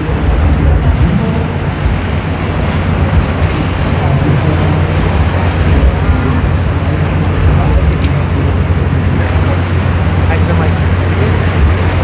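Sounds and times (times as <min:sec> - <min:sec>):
motorboat engine running: 0:00.0 - 0:12.0
water splashing: 0:00.0 - 0:12.0
wind buffeting microphone: 0:00.0 - 0:12.0.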